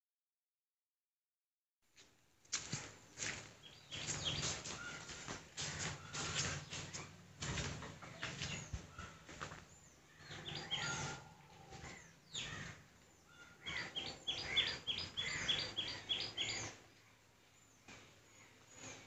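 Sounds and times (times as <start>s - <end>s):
parrots shrill calls: 10.1s - 16.7s.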